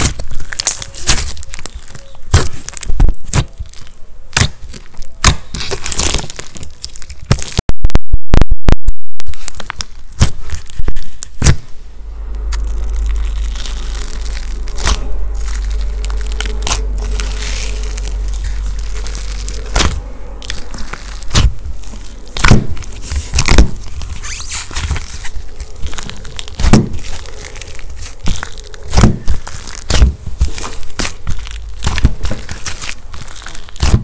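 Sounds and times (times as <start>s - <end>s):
slime crackling and popping: 0.0s - 7.6s, 9.2s - 34.0s
steady low hum: 9.6s - 34.0s.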